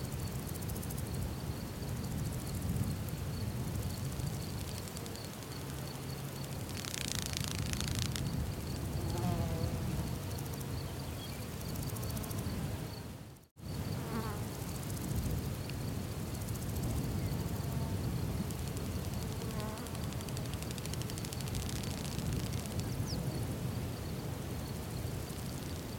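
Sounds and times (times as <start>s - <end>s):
faint insect ticking: 0.1s - 13.1s, 13.7s - 23.4s, 24.7s - 25.9s
fly buzzing: 4.4s - 10.8s.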